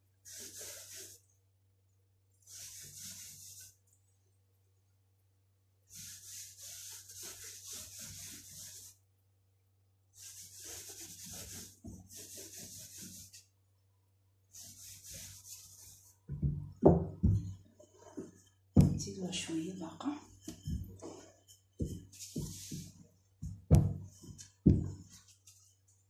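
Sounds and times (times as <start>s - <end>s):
hand brushing over dough: 0.2s - 1.3s, 5.9s - 9.0s, 10.2s - 13.6s, 14.5s - 16.6s, 20.2s - 26.0s.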